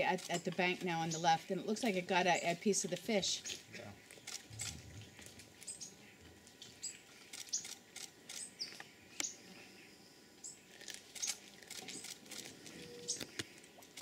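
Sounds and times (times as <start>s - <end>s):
otter chewing with wet crunches: 2.9s - 8.8s, 10.7s - 14.0s.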